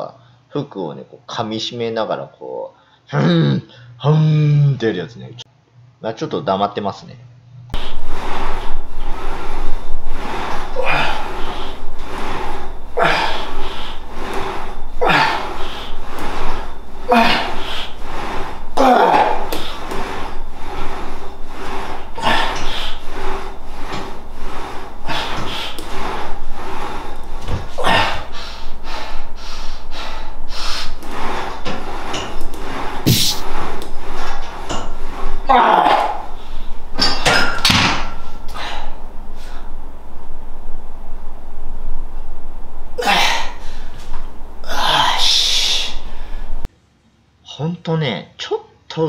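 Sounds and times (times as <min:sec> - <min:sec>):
man breathing hard: 0:07.8 - 0:33.4
man snorting through nose: 0:33.0 - 0:33.4.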